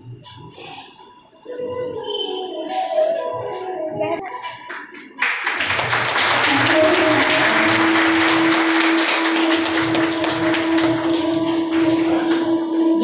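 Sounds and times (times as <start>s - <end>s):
audience clapping: 4.5s - 13.0s
long held musical note: 6.2s - 13.0s.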